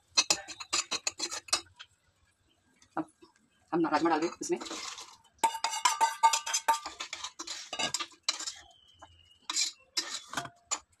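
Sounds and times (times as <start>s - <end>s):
steel utensils clinking: 0.1s - 1.7s, 4.0s - 11.0s.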